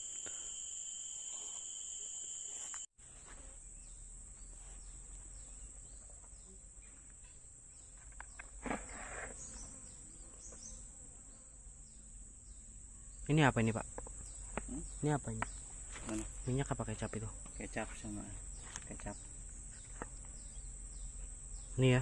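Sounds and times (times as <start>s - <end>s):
insect chorus: 0.0s - 22.0s.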